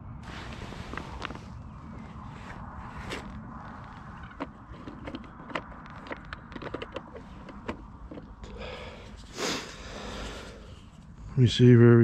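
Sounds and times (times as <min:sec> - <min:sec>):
low steady rumble: 0:00.0 - 0:12.0
fishing gear clicks and taps: 0:04.3 - 0:08.8
short breathy hiss: 0:08.8 - 0:10.6.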